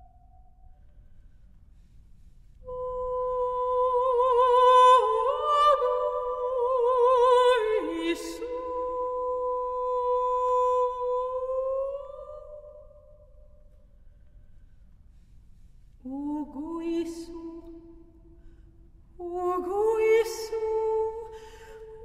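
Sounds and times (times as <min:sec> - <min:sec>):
woman singing unaccompanied: 0:02.7 - 0:12.8, 0:16.1 - 0:18.0, 0:19.2 - 0:22.0.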